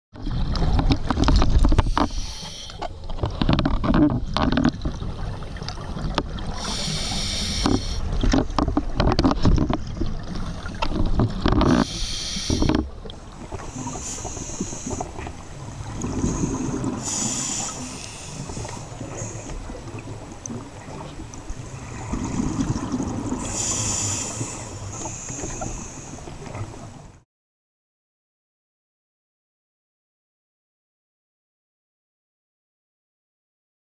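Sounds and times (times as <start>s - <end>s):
underwater regulator breathing: 1.7s - 3.1s, 6.5s - 8.3s, 11.6s - 19.8s, 23.3s - 26.6s
exhaled bubbles hissing: 1.8s - 2.8s, 6.4s - 8.2s, 11.6s - 26.7s.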